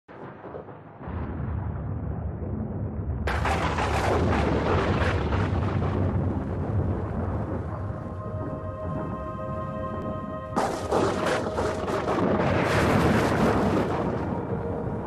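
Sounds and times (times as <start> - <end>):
crackling thunderclap: 0.1 - 15.0
low thunder rumble: 0.1 - 15.0
steady music notes: 7.3 - 15.0.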